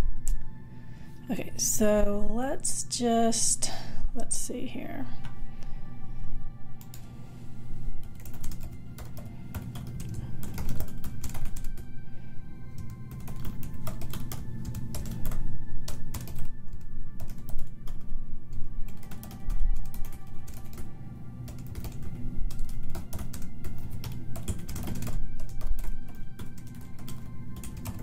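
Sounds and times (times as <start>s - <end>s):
background music: 0.0s - 28.0s
keyboard typing: 6.8s - 7.1s, 8.0s - 11.9s, 12.8s - 28.0s.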